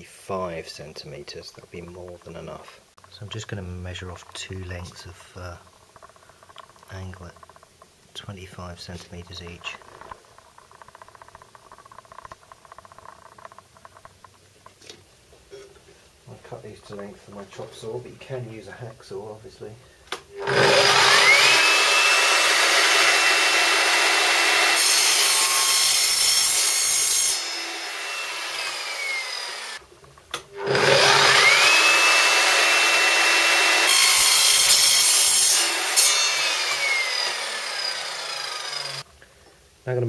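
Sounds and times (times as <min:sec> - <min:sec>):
saw blade cutting metal: 0:20.4 - 0:29.8, 0:30.6 - 0:39.0
saw motor whining: 0:20.4 - 0:29.8, 0:30.5 - 0:39.1.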